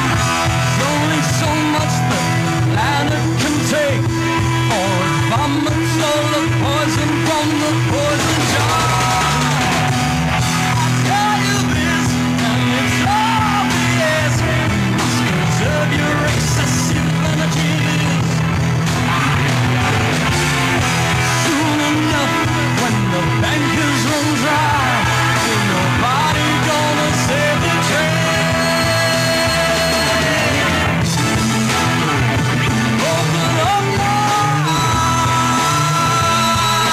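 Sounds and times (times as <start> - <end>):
person singing: 0.0 - 18.4, 21.2 - 31.4, 32.8 - 36.9
live rock band playing: 0.0 - 36.9.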